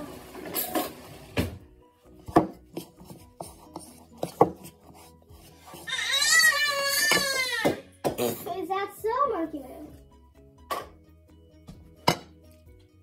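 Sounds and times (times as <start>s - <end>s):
utensil stirring batter in a bowl: 2.1s - 6.1s
child crying out: 5.8s - 7.8s.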